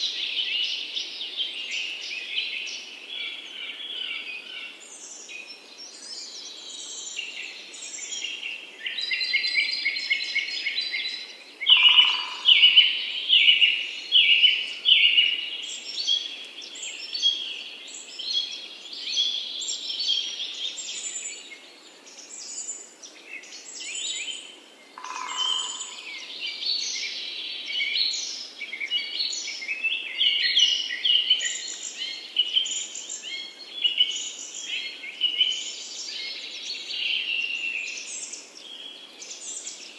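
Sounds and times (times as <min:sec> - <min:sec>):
birds singing and chirping: 0:00.0 - 0:39.9.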